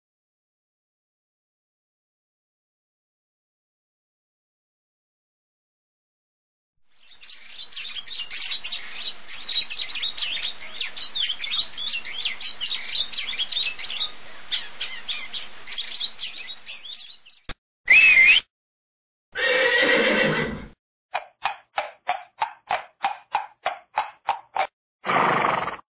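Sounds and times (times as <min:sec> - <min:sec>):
small birds chirping: 0:06.9 - 0:18.4.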